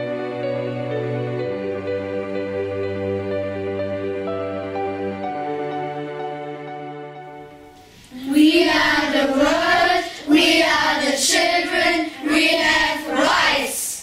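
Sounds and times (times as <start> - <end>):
children singing: 8.1 - 14.0.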